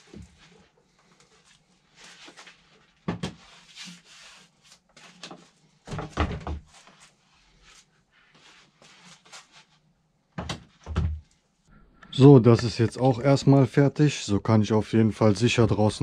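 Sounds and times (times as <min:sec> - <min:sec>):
rustling and scraping: 0:00.0 - 0:05.8, 0:06.4 - 0:09.8.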